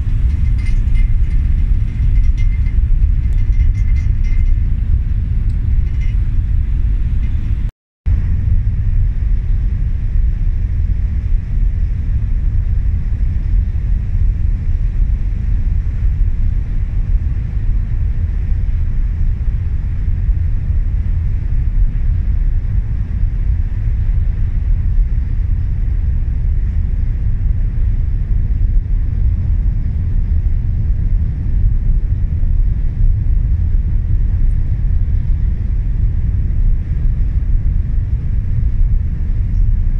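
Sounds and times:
ferry engine low rumble: 0.0 - 39.9.

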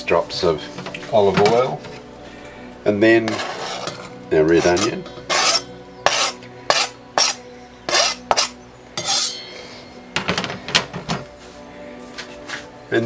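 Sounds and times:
knife scraping chopping board: 4.6 - 9.2.

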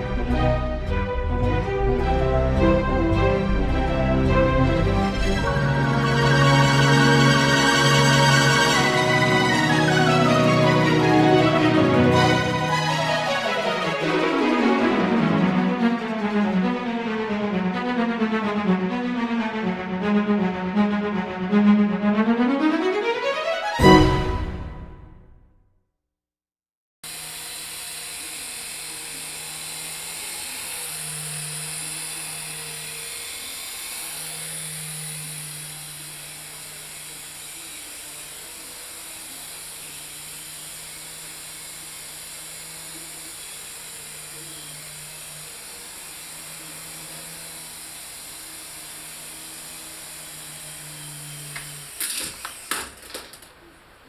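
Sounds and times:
toy helicopter rotors whirring: 5.1 - 14.2, 27.0 - 53.6
helicopter crashing on floor: 51.5 - 53.6.

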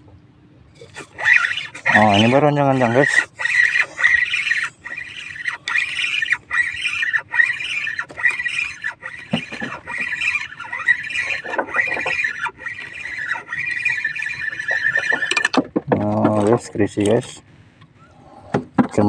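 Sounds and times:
fishing reel squeaky whirr: 0.7 - 15.6.

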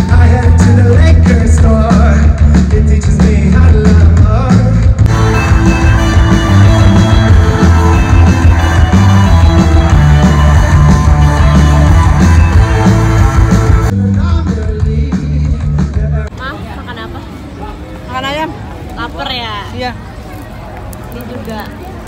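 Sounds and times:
live rock band playing: 0.0 - 16.3.

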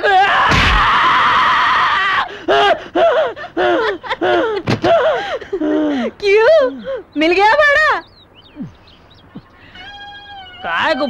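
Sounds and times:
sharp smack: 0.5 - 0.9.

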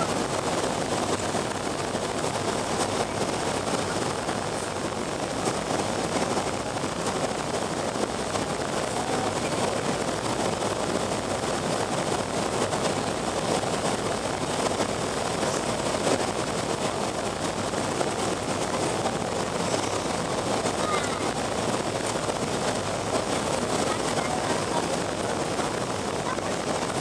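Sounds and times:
airflow rushing in cabin: 0.0 - 27.0
jet engines droning: 0.0 - 27.0.

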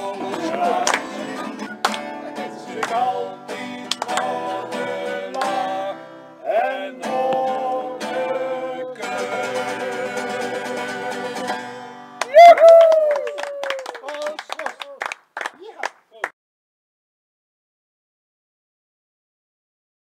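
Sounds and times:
voices singing: 0.0 - 11.6
acoustic guitar strumming: 0.0 - 12.2.

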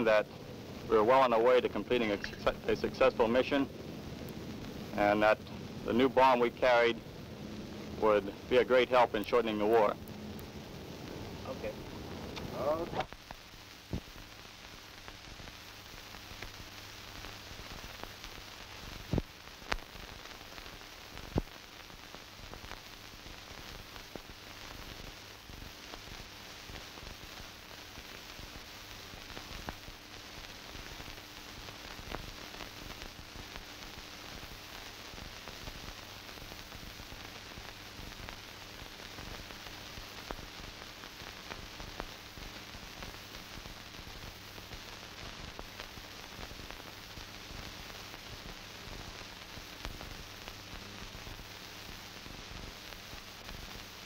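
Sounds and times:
faint steady hum: 0.0 - 54.0
film soundtrack hiss and crackle: 0.0 - 54.0
faint ticks: 19.1 - 20.0.

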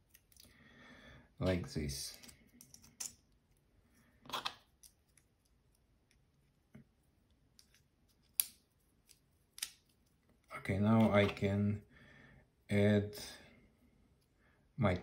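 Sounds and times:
parts scraping: 4.2 - 4.7, 10.8 - 11.6.

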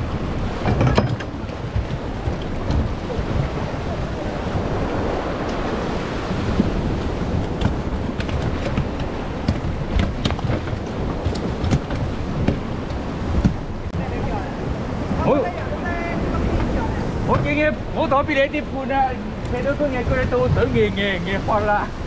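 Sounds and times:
waves and surf breaking: 0.0 - 22.0
wind buffeting microphone: 0.0 - 22.0
sharp clicks or knocks: 7.4 - 13.6.

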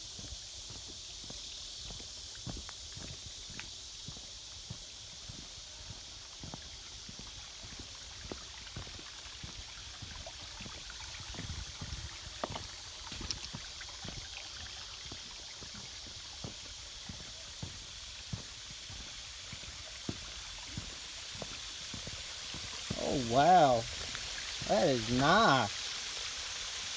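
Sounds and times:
steady high hiss: 0.0 - 26.9
footsteps on rock: 6.4 - 14.2.

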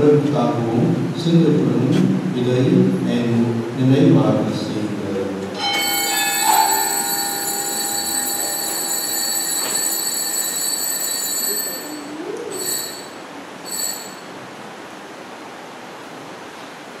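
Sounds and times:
bell ringing: 5.6 - 14.5.

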